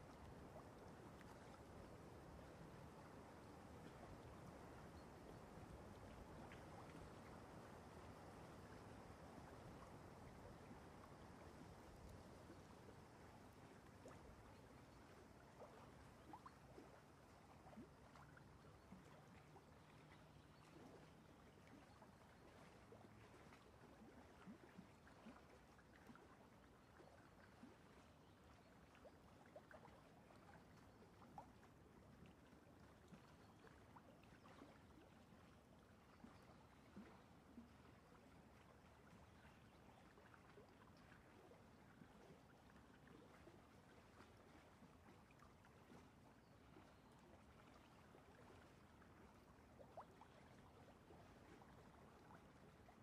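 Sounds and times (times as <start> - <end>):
faint room hiss: 0.0 - 34.8.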